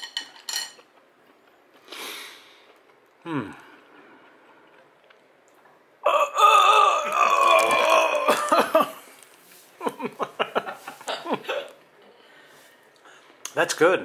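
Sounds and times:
man burping loudly: 6.0s - 9.0s
laughter: 9.8s - 11.7s.

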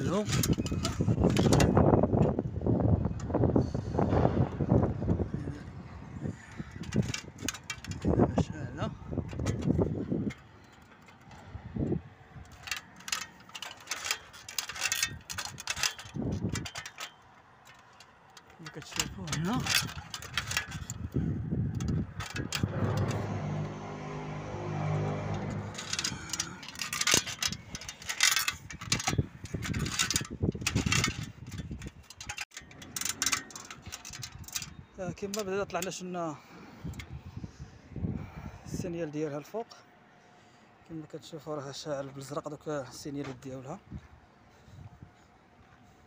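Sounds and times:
phone handling rustle: 0.0s - 2.4s, 6.5s - 8.4s, 9.1s - 35.9s
ladder clicking and rattling: 0.0s - 2.5s, 6.2s - 36.1s.

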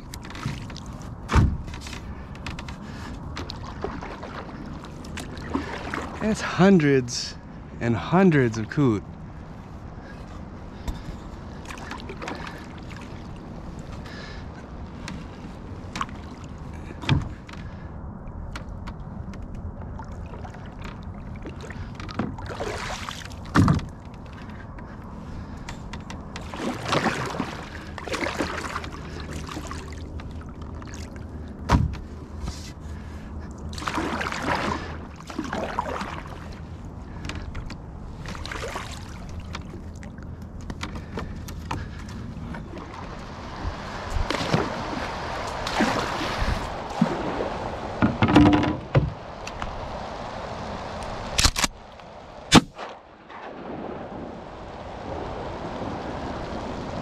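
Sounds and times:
paddle splashing through water: 0.0s - 6.6s, 10.0s - 17.8s, 19.8s - 57.0s
paddle knocking canoe side: 47.9s - 49.6s.

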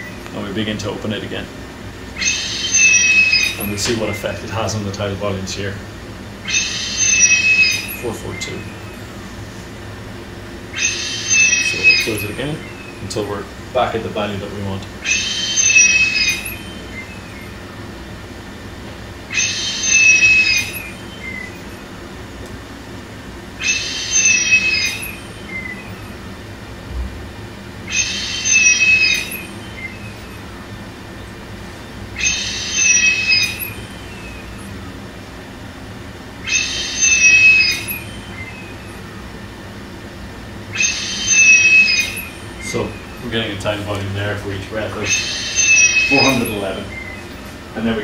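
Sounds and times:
high whistling tone: 2.2s - 4.8s, 6.4s - 9.1s, 10.7s - 13.1s, 15.0s - 17.7s, 19.3s - 21.8s, 23.6s - 26.3s, 27.9s - 30.7s, 32.2s - 34.9s, 36.4s - 39.2s, 40.7s - 43.8s, 44.8s - 47.5s.

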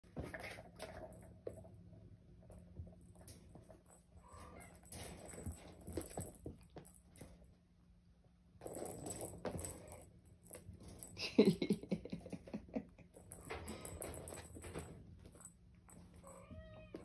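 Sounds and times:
kittens' paws scuffling: 2.4s - 7.6s, 12.2s - 17.0s.

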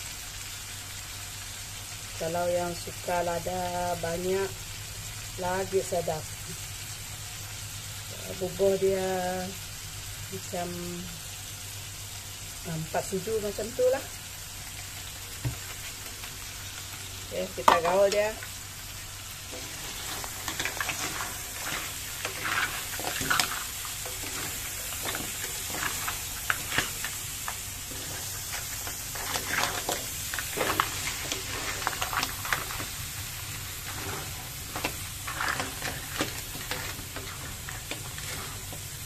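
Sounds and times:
crabs sizzling in a wok: 0.0s - 39.0s
utensils scraping and clattering: 19.5s - 33.0s, 33.7s - 39.0s.

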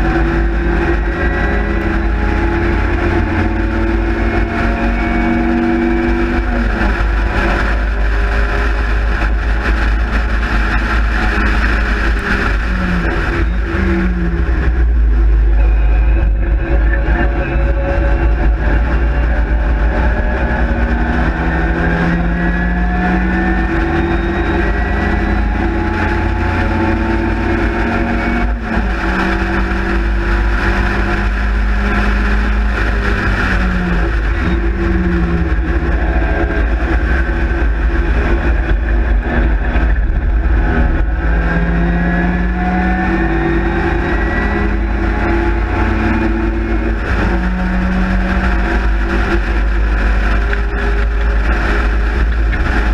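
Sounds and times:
low wind rumble: 0.0s - 52.9s
race car engine running hard: 0.0s - 52.9s.

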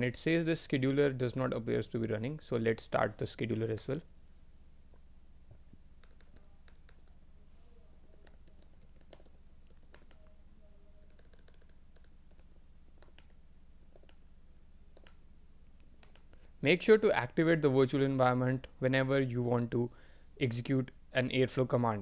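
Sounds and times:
low steady background hum: 0.0s - 22.0s
keyboard typing: 6.0s - 7.2s, 8.1s - 10.3s, 11.0s - 14.3s, 14.9s - 15.2s, 16.0s - 16.3s.

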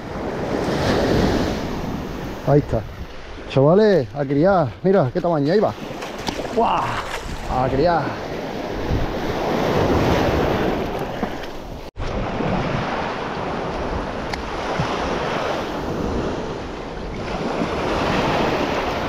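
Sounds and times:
wind buffeting microphone: 0.0s - 19.0s
surf breaking on a beach: 5.5s - 19.0s.

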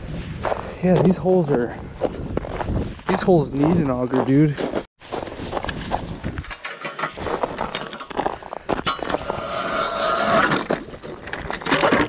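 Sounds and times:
ice auger grinding and squealing: 9.0s - 12.0s.

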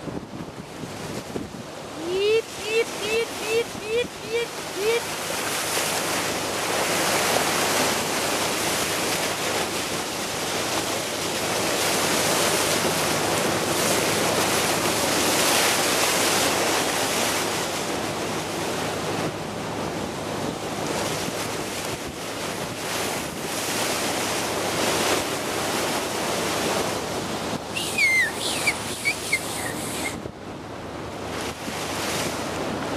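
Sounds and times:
wind buffeting microphone: 0.0s - 15.6s, 19.0s - 32.9s
water splashing along a bow: 0.0s - 32.9s
high squeaks: 27.8s - 30.2s.

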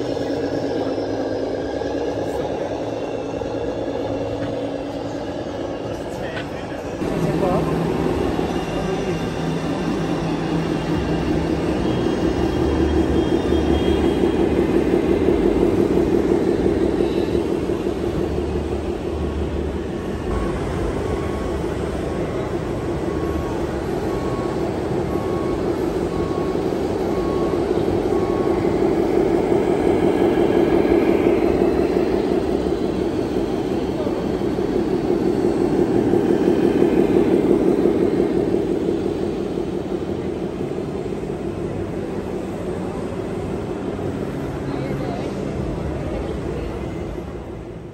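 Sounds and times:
diesel truck engine rumbling: 0.0s - 47.9s.

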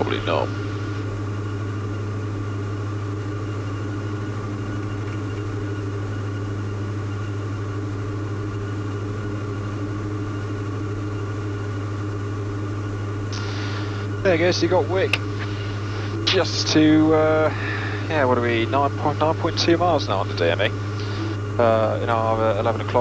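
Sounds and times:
aircraft engines droning in cockpit: 0.0s - 23.0s.

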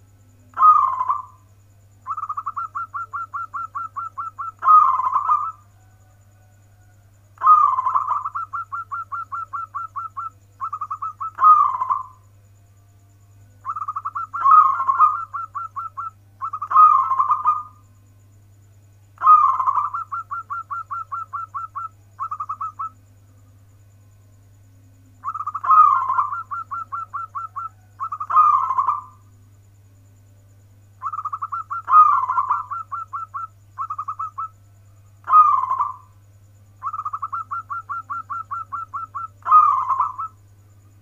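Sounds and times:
dove cooing: 0.0s - 12.3s, 13.6s - 17.9s, 19.2s - 23.0s, 25.2s - 29.3s, 31.0s - 34.6s, 35.2s - 36.2s, 36.8s - 40.4s.

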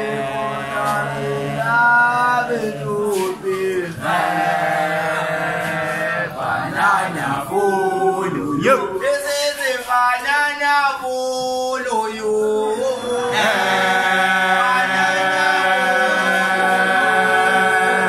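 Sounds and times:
boys singing group chant: 0.0s - 10.7s, 11.4s - 18.0s.

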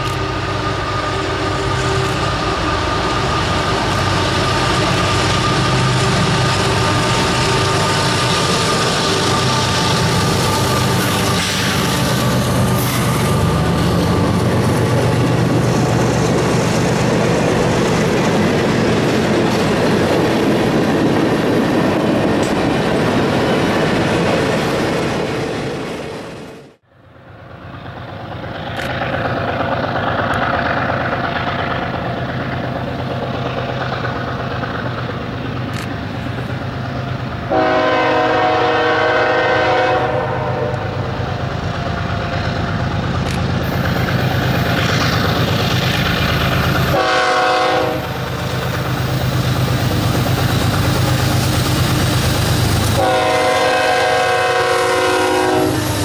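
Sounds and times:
freight train wheels clattering: 0.0s - 26.2s, 27.9s - 39.6s, 40.9s - 56.0s
locomotive engine: 0.0s - 56.0s
train air horn blast: 37.5s - 41.0s, 46.9s - 48.2s, 52.9s - 56.0s.

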